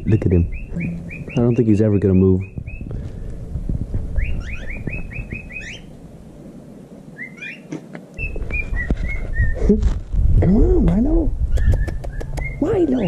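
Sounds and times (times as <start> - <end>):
bird chirping: 0.0 - 3.4, 4.1 - 6.0, 7.1 - 9.6, 11.4 - 13.0.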